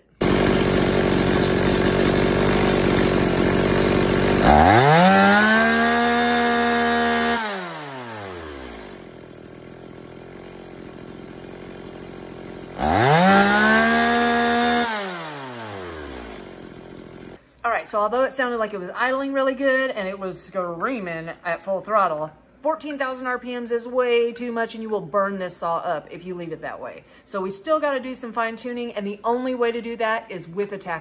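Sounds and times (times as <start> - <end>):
chainsaw revving: 0.1 - 17.4.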